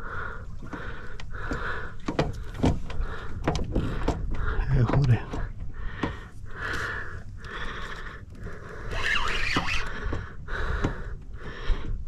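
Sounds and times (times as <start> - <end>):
person breathing noisily: 0.0 - 12.0.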